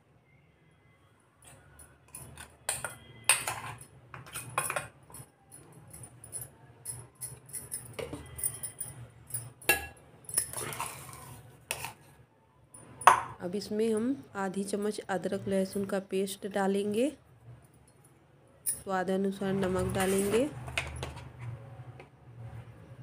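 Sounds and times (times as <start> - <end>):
spoon scraping a jar: 1.4 - 4.9, 7.0 - 8.9, 10.3 - 12.1, 19.7 - 21.7
metal spoon clinking: 1.6 - 12.0.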